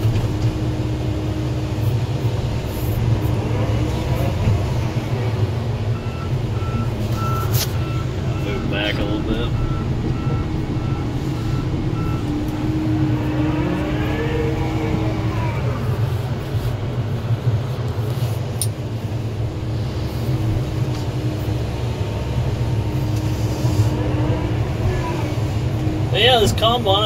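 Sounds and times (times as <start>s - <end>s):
excavator diesel engine: 0.0s - 27.0s
backup alarm beeping: 5.9s - 12.3s.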